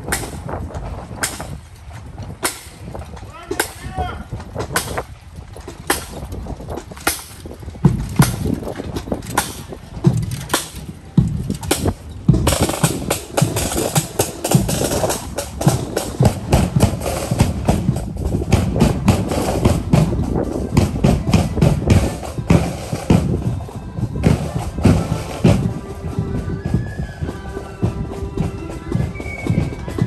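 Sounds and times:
snare and bass drums marching: 0.0 - 30.0
held musical notes: 7.0 - 30.0.

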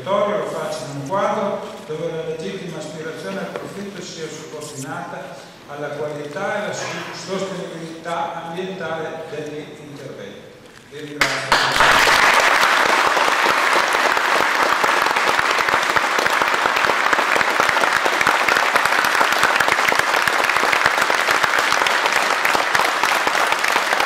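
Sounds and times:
audience applauding: 11.2 - 24.0.

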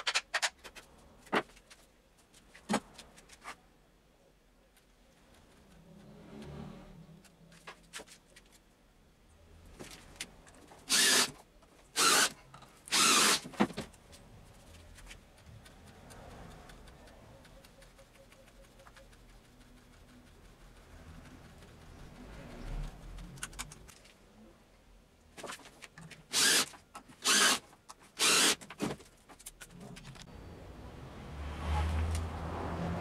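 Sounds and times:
power tool bursts: 10.9 - 11.3, 12.0 - 12.3, 12.9 - 13.5, 26.3 - 27.6, 28.2 - 28.6.

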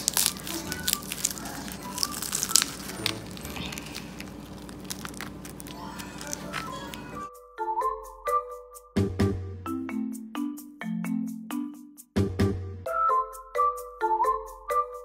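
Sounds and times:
crisp pastry crackling: 0.0 - 7.3.

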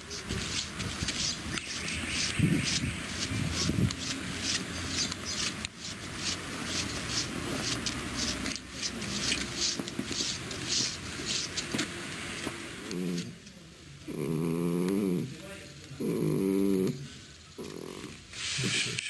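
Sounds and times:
footsteps crunching on snow: 0.0 - 12.6.

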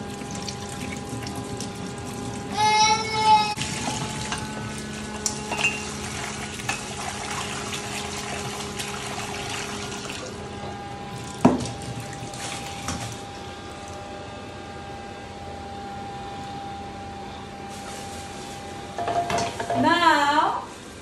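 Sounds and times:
tap running into metal sink: 11.4 - 12.1.

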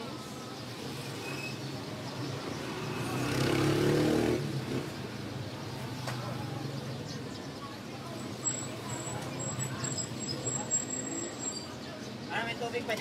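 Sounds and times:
passing vehicle engine: 2.3 - 6.9.

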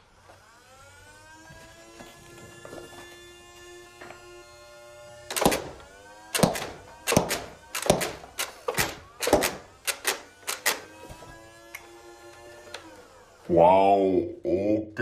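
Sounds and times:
toy blaster firing darts: 5.2 - 11.0.

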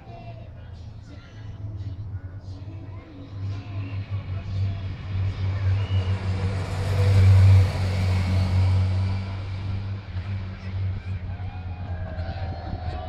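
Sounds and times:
motorcycle passing by: 3.2 - 13.0.

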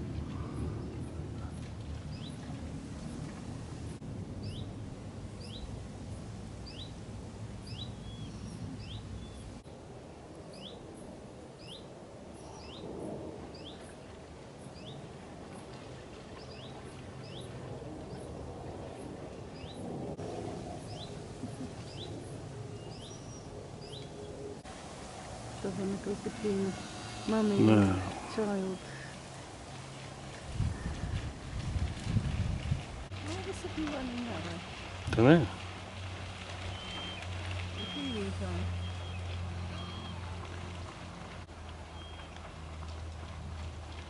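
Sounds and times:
low steady rumble: 0.0 - 11.1.

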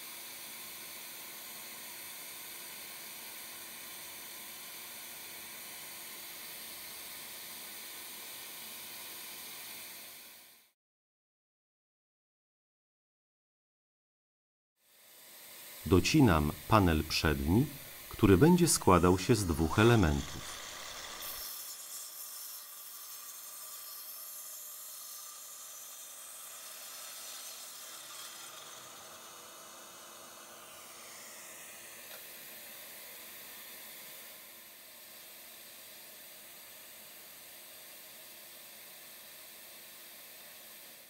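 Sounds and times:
mitre saw cutting wood: 15.1 - 32.3.

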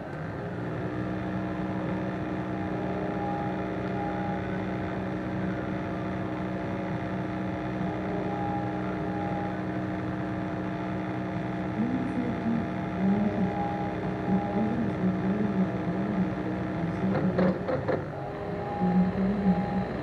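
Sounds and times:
steady electrical hum: 0.0 - 20.0
low wavering voice-like sound: 11.7 - 17.6, 18.2 - 20.0.

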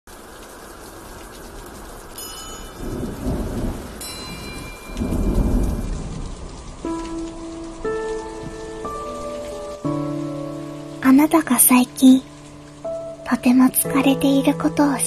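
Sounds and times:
steady rain: 0.1 - 15.0
thunder rolling: 2.7 - 10.0.

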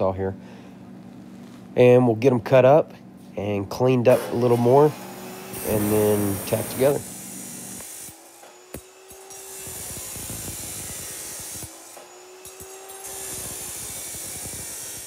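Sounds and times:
cut-off wheel grinding steel: 4.1 - 15.0
saw motor humming: 4.1 - 15.0.

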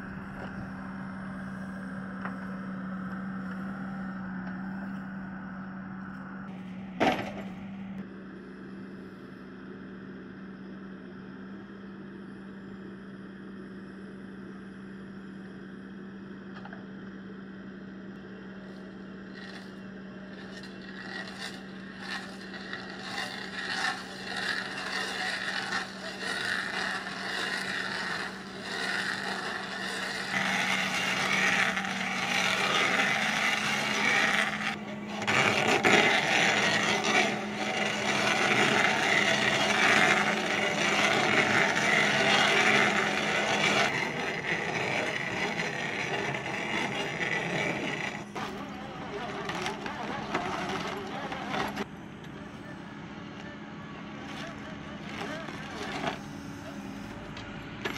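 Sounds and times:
engine humming: 0.0 - 57.9
stump crusher cracking wood: 20.3 - 51.9, 54.3 - 56.2.

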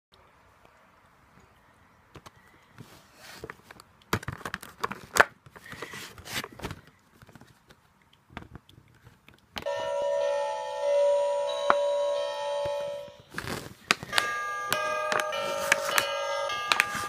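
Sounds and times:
plastic packaging crinkling: 13.3 - 17.0.

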